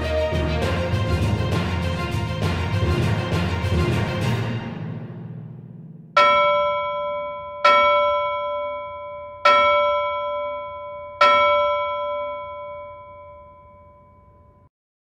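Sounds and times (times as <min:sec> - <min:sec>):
struck bell tones ringing: 0:06.2 - 0:14.7.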